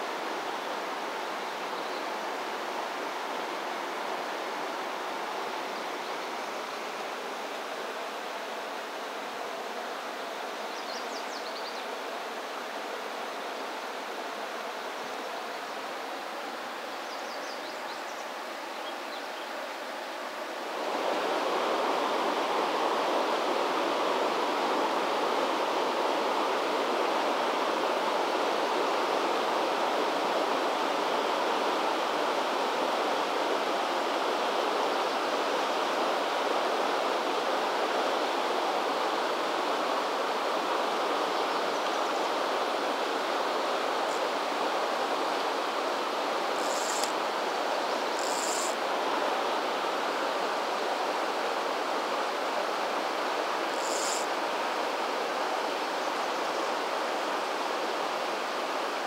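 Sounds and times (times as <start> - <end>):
river current rushing: 19.6 - 59.0.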